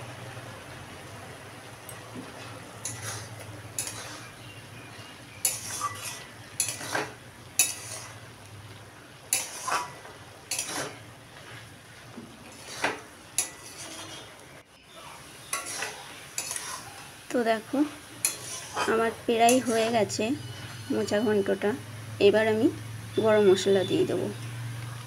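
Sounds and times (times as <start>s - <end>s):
metal spatula scraping metal pan: 2.4s - 4.4s, 5.4s - 8.3s, 9.3s - 11.1s, 12.4s - 14.4s, 15.4s - 17.0s, 18.2s - 21.5s.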